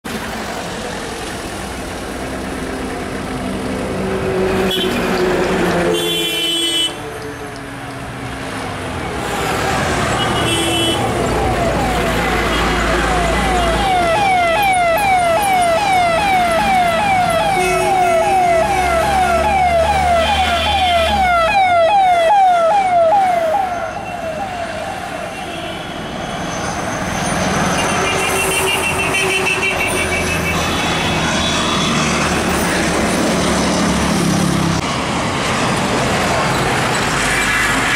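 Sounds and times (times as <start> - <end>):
passing vehicles: 0.0 - 37.9
emergency siren yelping: 11.0 - 25.3.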